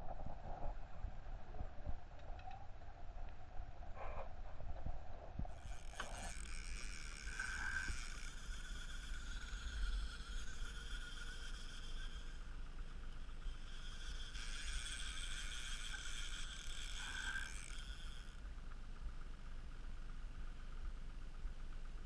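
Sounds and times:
high motor whine: 5.4s - 22.0s
boat motor running: 5.5s - 22.0s.

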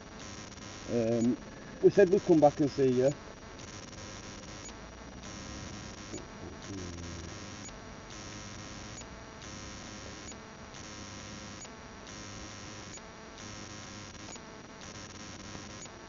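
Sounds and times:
faint hum: 0.0s - 16.0s
pulsing radio static: 0.2s - 10.3s
small tick: 14.2s - 14.4s.

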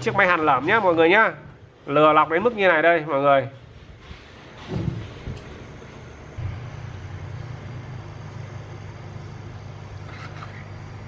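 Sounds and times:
hot air blower humming: 4.6s - 11.0s.

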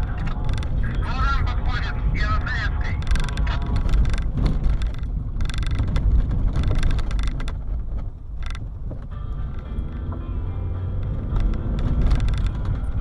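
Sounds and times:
clicks and rattles: 0.0s - 1.0s, 2.8s - 9.7s, 11.0s - 13.0s
road and wind rumble: 0.0s - 13.0s.

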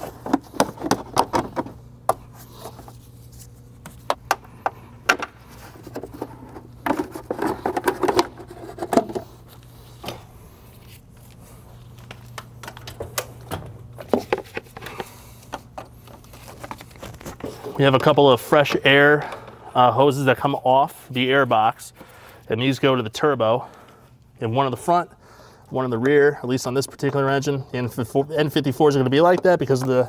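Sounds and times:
parts clicking and rustling: 0.0s - 10.2s, 11.2s - 19.6s
steady low hum: 0.0s - 30.0s.

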